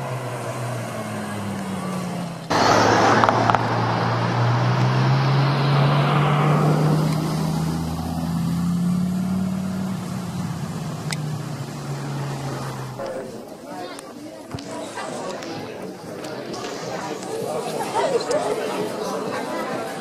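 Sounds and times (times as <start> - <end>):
sports car accelerating past: 0.0 - 13.2.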